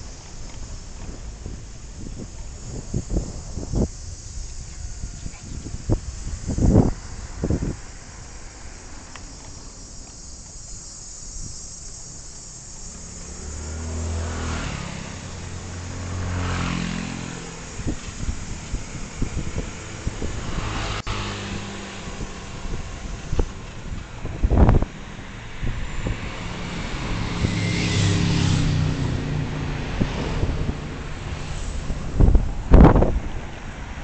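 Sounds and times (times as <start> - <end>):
road and wind noise: 0.0 - 34.0
vehicle engine accelerating: 11.9 - 34.0.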